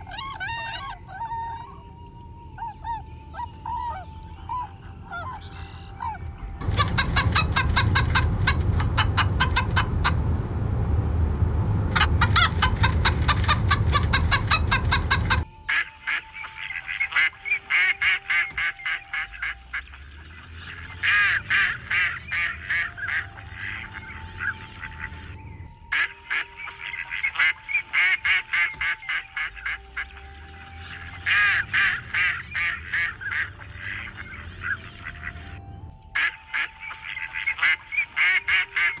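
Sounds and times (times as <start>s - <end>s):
geese and ducks calling: 0.0s - 10.4s, 11.9s - 39.0s
loud low rumble: 6.4s - 15.5s.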